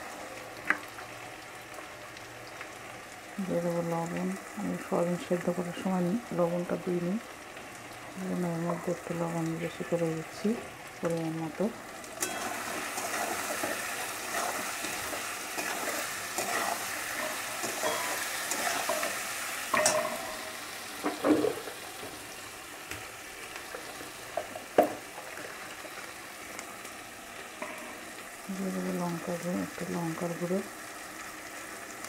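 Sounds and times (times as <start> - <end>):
vegetables sizzling in oil: 0.0 - 32.0
metal spatula scraping pan: 12.2 - 20.5.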